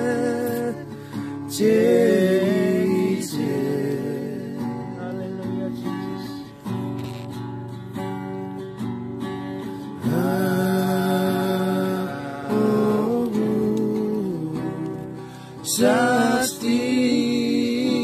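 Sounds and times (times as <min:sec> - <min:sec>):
men singing a hymn together: 0:00.0 - 0:05.8, 0:10.0 - 0:18.0
strummed acoustic guitar: 0:00.0 - 0:18.0.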